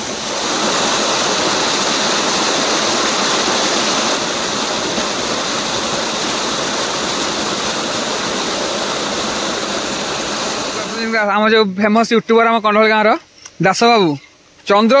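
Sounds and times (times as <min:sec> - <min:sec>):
waterfall splashing over rocks: 0:00.0 - 0:11.4.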